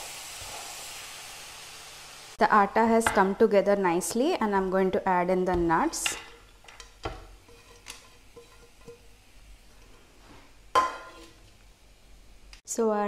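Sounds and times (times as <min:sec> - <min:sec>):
spatula scraping frying pan: 0:06.0 - 0:10.2, 0:10.8 - 0:11.5.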